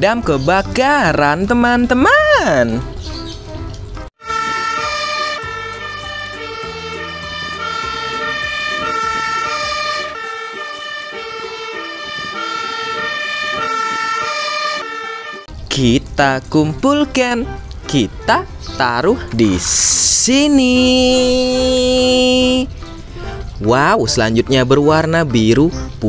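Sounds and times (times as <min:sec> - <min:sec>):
two-tone fire engine siren: 0:04.2 - 0:15.5.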